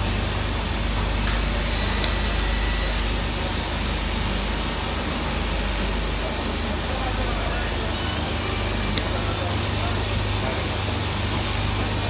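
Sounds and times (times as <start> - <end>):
electric motor humming: 1.0 - 3.8.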